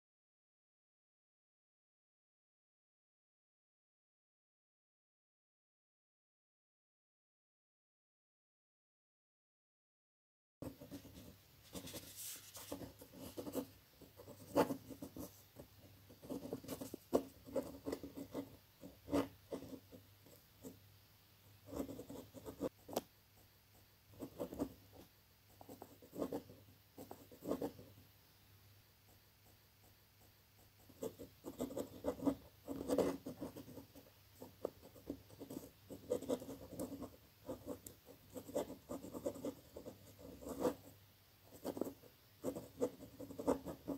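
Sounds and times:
pen scratching on paper: 10.6s - 20.8s, 21.6s - 28.0s, 29.1s - 43.9s.

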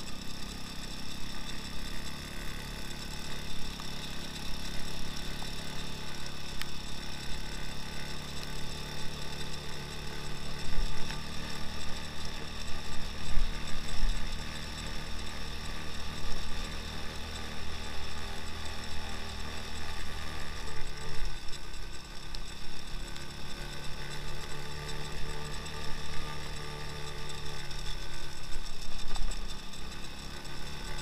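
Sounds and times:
motorcycle engine running: 0.0s - 31.0s.

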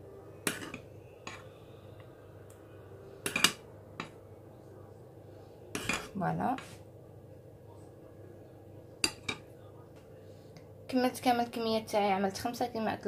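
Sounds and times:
utensil clinking on kitchenware: 3.2s - 4.2s.

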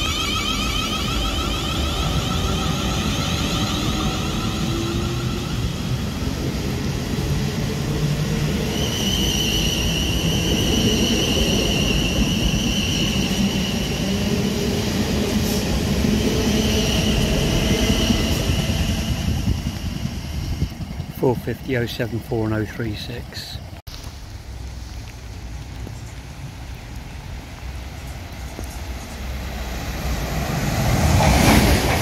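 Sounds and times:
high-pitched whine: 0.0s - 7.9s
train wheels rumbling on rail: 0.0s - 23.8s, 24.8s - 32.0s.

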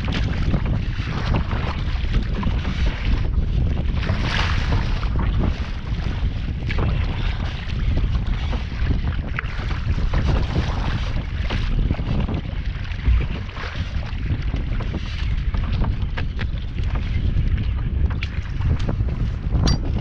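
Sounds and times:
kayak paddle splashing water: 0.0s - 19.3s
wind buffeting microphone: 0.0s - 20.0s
short low thump: 13.0s - 13.5s, 19.5s - 20.0s.

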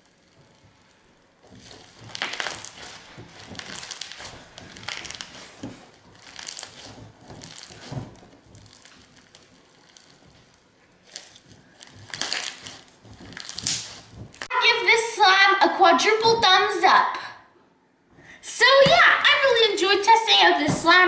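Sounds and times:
slime crunching and crackling: 0.0s - 14.5s.

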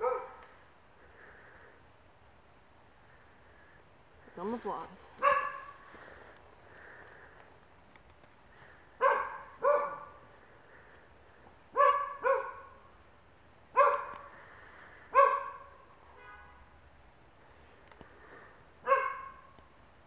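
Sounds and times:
dog barking: 0.0s - 0.5s, 5.2s - 5.8s, 9.0s - 10.2s, 11.8s - 12.8s, 13.8s - 14.3s, 15.1s - 15.7s, 18.8s - 19.5s.

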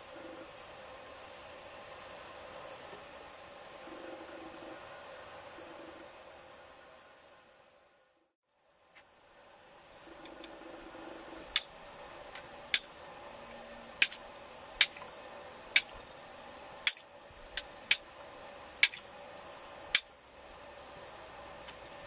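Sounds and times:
flint and steel strikes: 12.7s - 12.9s, 14.0s - 14.2s, 14.8s - 15.1s, 15.7s - 16.0s, 16.8s - 17.0s, 18.8s - 19.1s.

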